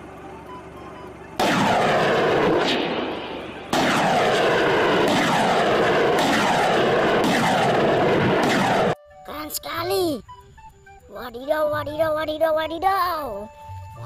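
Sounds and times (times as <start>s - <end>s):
rockets launching roar: 1.4s - 9.0s.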